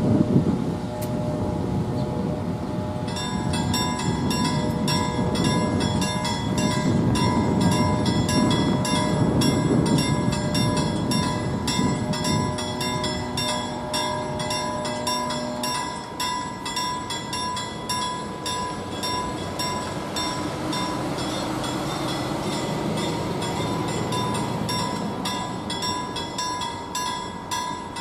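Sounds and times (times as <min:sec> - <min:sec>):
level crossing bell ringing: 0:03.1 - 0:28.0
bus driving past: 0:18.8 - 0:26.3.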